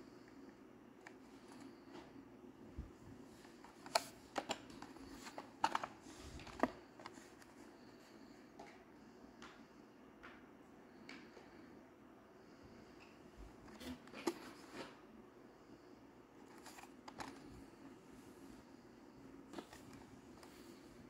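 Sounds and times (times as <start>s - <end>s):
plastic blister packs clicking: 3.6s - 7.2s.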